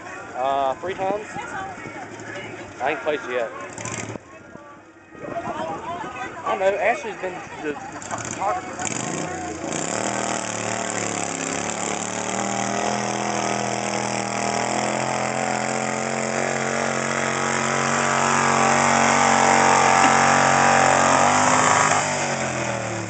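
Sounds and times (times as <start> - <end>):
tractor engine running under load: 7.8 - 23.0.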